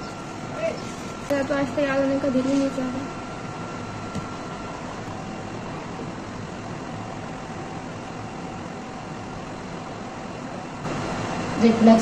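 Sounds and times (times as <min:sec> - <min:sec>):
hum and hiss: 0:00.0 - 0:12.0.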